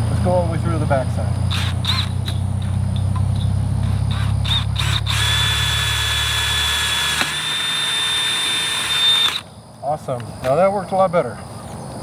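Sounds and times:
cordless drill motor: 0:01.5 - 0:02.2, 0:03.8 - 0:09.5
drill bit whining in steel: 0:01.5 - 0:02.4, 0:03.8 - 0:09.5.

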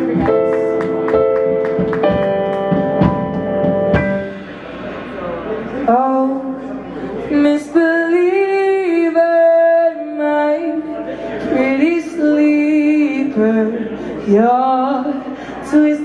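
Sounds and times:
boy singing into a microphone: 0:05.9 - 0:16.0.

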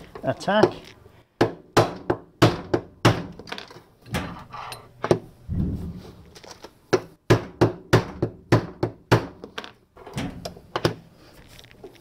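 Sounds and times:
dull thud: 0:05.5 - 0:06.2.

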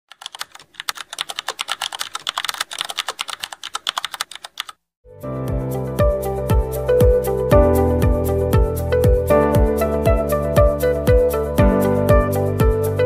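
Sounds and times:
keyboard typing clicks: 0:00.1 - 0:04.8
music with deep beat: 0:05.5 - 0:13.0.

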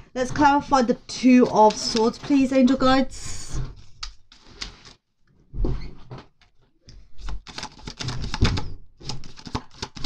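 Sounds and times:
cards being shuffled: 0:07.2 - 0:10.0.

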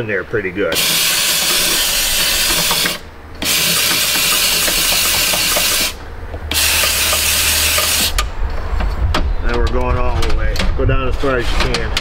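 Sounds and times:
spray gun hissing: 0:00.8 - 0:08.2.

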